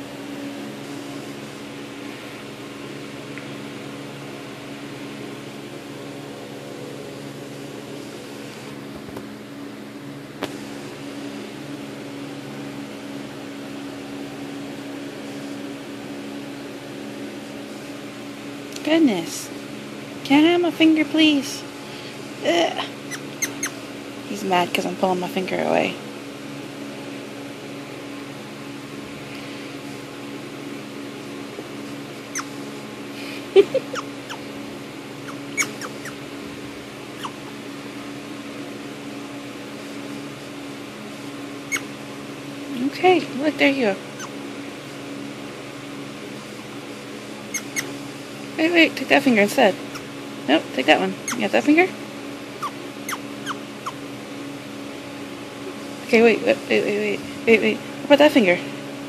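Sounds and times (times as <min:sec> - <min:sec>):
mechanical hum: 0:00.0 - 0:59.0
prairie dog squeaking: 0:23.1 - 0:23.8, 0:32.3 - 0:32.6, 0:33.8 - 0:34.4, 0:35.2 - 0:36.2, 0:37.2 - 0:37.4, 0:41.7 - 0:41.9, 0:44.1 - 0:44.4, 0:47.5 - 0:48.0, 0:51.2 - 0:51.5, 0:52.6 - 0:54.0.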